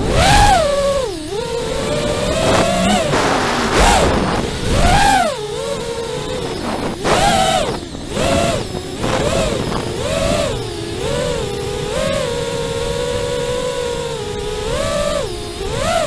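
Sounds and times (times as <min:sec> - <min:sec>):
drone motors and propellers whining: 0:00.0 - 0:16.0.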